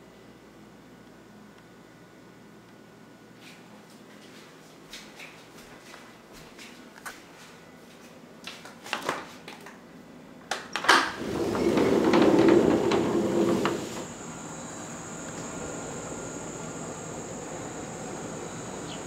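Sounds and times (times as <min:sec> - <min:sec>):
sliding door rumbling on track: 0:11.1 - 0:19.0
insects droning: 0:11.2 - 0:19.0.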